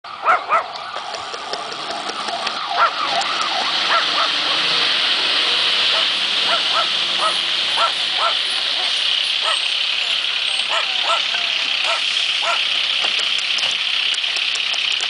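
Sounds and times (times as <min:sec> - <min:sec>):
fire engines running: 0:00.0 - 0:15.0
dog barking: 0:00.2 - 0:00.7, 0:02.8 - 0:03.0, 0:03.9 - 0:04.6, 0:05.9 - 0:09.6, 0:10.7 - 0:12.7.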